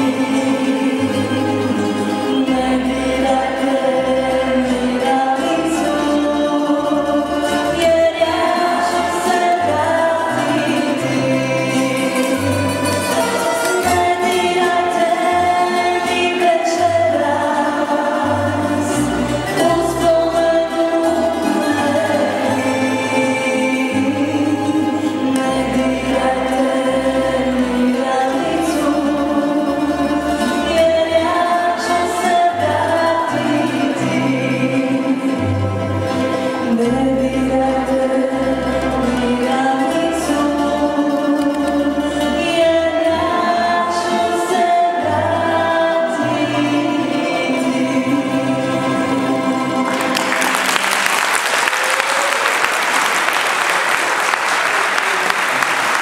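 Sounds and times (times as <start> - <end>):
woman singing: 0.0 - 35.8, 36.5 - 50.2
double bass low notes: 0.0 - 50.2
plucked string orchestra: 0.0 - 56.0
audience applause: 49.8 - 56.0.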